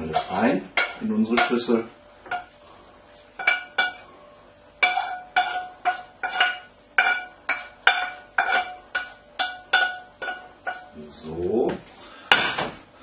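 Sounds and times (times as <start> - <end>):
metal frying pan knocking: 3.4 - 4.0, 4.8 - 10.9.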